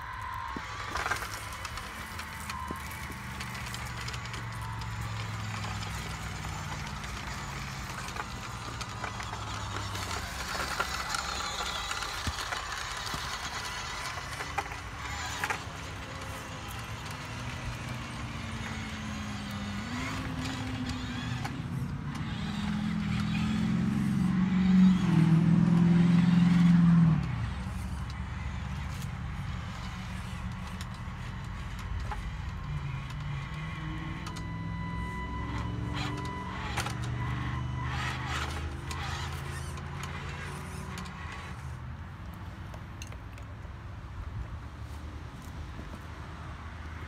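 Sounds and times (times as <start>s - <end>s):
toy truck motor droning: 0.0s - 43.6s.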